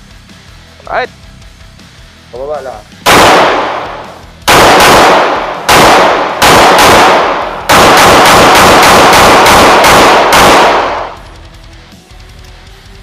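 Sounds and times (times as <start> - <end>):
pistol shots ringing: 3.0 - 11.2.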